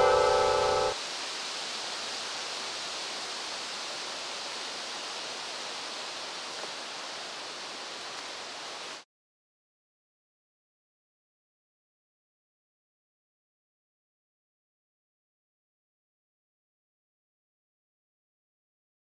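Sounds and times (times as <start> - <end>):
ringing musical chord: 0.0 - 1.0
steady rushing hiss: 0.0 - 9.1.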